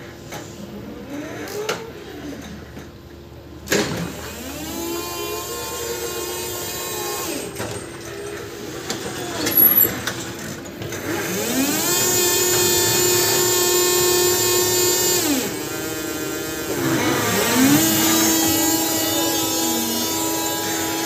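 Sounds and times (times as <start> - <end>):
electric motor whining: 11.1 - 21.0.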